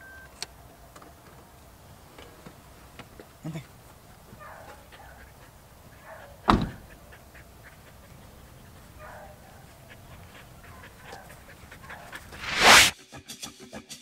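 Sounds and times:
car door shutting: 6.5s - 6.8s
rising whoosh: 12.3s - 13.0s.

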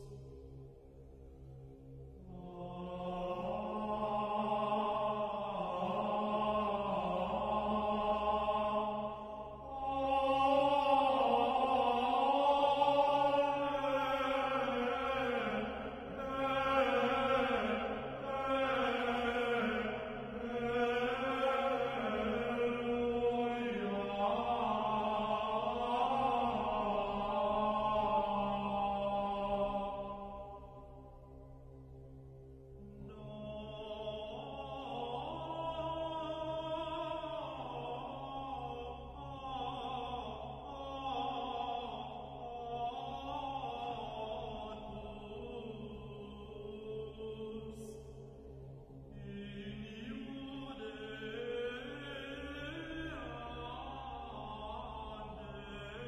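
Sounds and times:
chant-like held voices: 0.0s - 56.0s
steady low drone: 0.0s - 56.0s.

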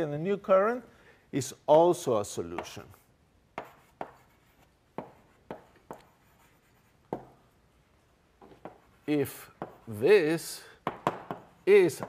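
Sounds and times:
chalk tapping and scraping: 2.5s - 7.6s, 8.4s - 12.0s.

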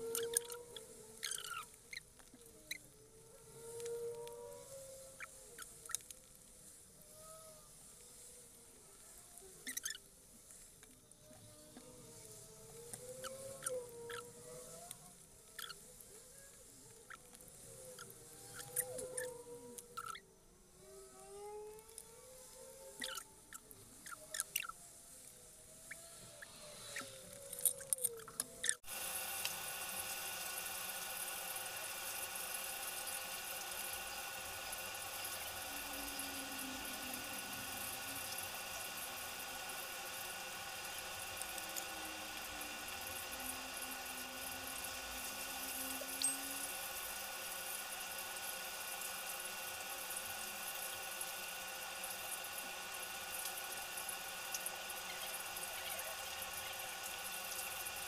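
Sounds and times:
steady hiss: 0.0s - 20.2s, 28.6s - 58.0s
machine hum: 28.6s - 58.0s.

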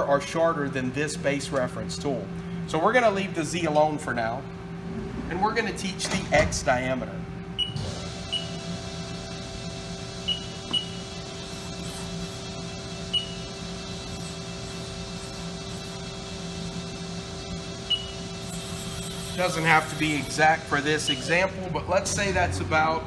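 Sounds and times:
lathe humming: 7.9s - 23.0s.

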